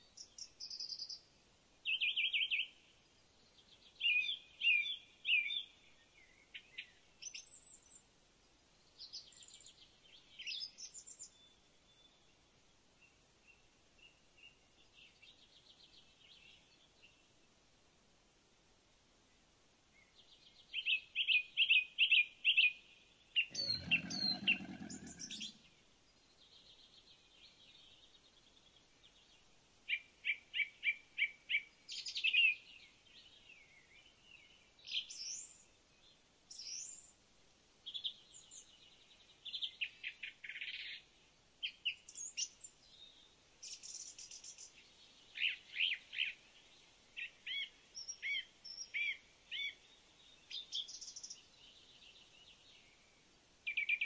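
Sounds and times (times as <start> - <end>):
birds chirping: 23.4 - 25.8.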